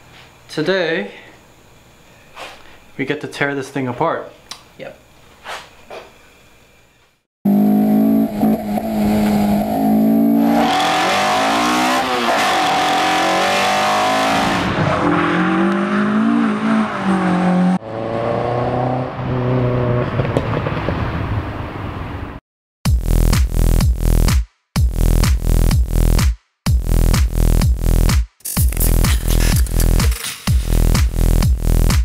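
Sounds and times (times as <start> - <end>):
car engine revving: 7.5 - 20.7.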